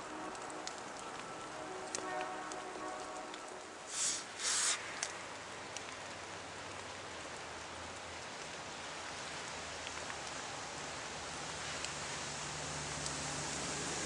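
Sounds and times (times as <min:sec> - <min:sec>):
steady outdoor hiss: 0:00.0 - 0:14.0
short rushes of hiss: 0:03.9 - 0:05.0
faint ticks: 0:04.7 - 0:07.4.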